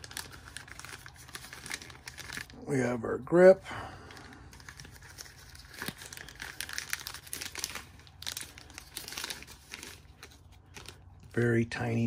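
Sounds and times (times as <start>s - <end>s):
plastic bag crinkling: 0.0s - 2.7s, 4.0s - 11.5s.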